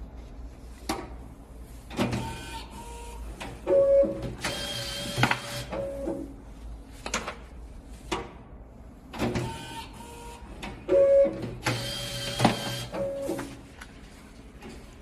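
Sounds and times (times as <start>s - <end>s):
booklet maker mechanism running: 11.6s - 13.5s.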